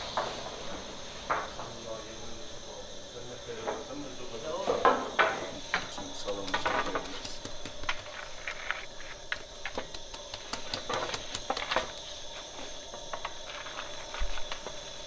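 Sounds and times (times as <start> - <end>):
hot pebbles clicking and rattling: 4.7 - 15.0
pole scraping on stones: 6.6 - 9.3.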